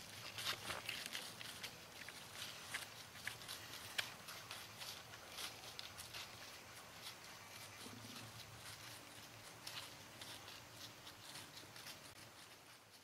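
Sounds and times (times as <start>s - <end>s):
rustling in dry leaves: 0.0s - 13.0s.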